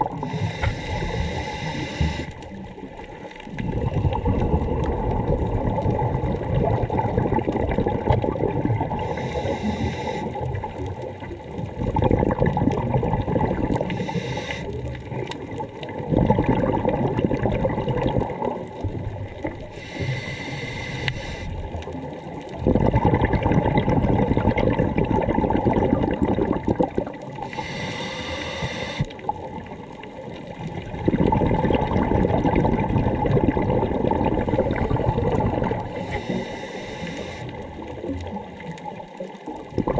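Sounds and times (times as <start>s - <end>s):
gurgling exhaled bubbles: 0.0s - 39.9s
hissing regulator inhales: 0.1s - 2.4s, 9.0s - 10.4s, 13.9s - 14.8s, 19.7s - 21.6s, 27.4s - 29.2s, 35.8s - 37.6s.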